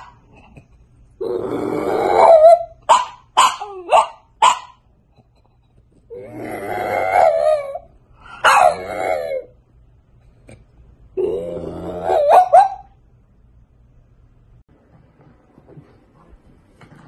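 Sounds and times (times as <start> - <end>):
puppy howling: 1.6 - 2.8, 6.4 - 7.9, 8.5 - 9.6, 11.2 - 12.9.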